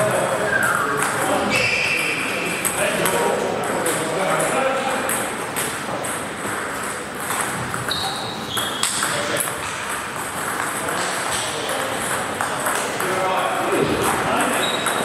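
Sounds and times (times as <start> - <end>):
short high squeaks: 7.9 - 9.0.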